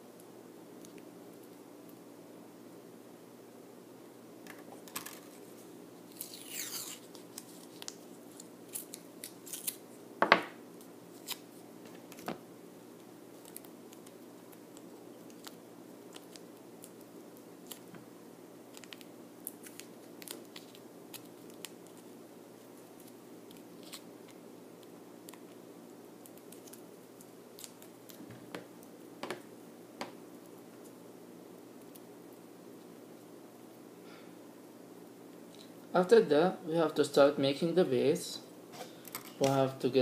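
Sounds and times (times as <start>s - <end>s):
masking tape pulled and torn: 6.1s - 9.8s.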